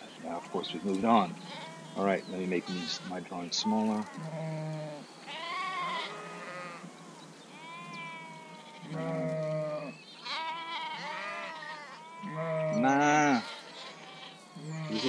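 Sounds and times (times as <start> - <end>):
sheep bleating: 0.2 - 6.8, 7.6 - 15.0.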